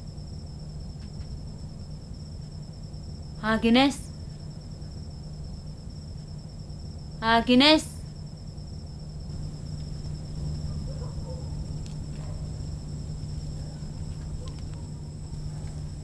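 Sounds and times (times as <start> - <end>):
crickets trilling: 0.0 - 16.0
low steady hum: 9.1 - 16.0.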